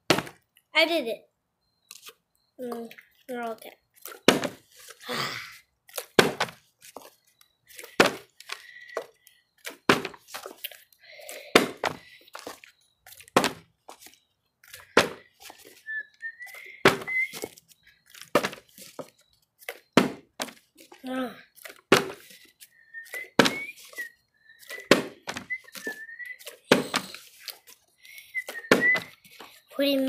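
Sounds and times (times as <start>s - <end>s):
plastic bottle thunking on floor: 4.3s - 4.6s, 6.2s - 6.6s, 9.9s - 10.2s, 20.0s - 20.6s, 24.9s - 25.6s.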